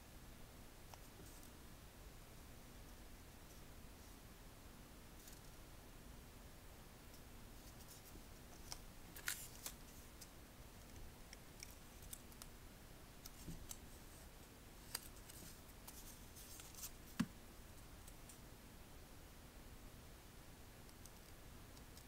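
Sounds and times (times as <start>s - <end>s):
paper folding and crinkling: 7.6s - 10.1s, 14.8s - 17.2s.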